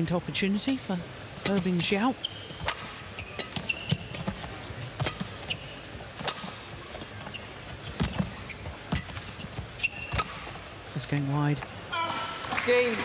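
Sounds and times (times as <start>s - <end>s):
shoes squeaking on court: 1.4s - 11.8s
racket hitting shuttlecock: 2.5s - 7.2s, 7.9s - 10.6s.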